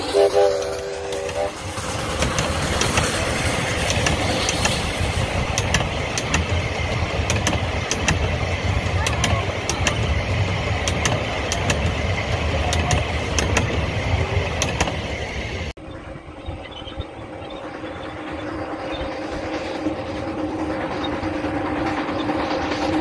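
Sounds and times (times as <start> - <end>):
wheels clacking over rail joints: 0.0 - 15.7
train wheels rumbling on rails: 0.0 - 23.0.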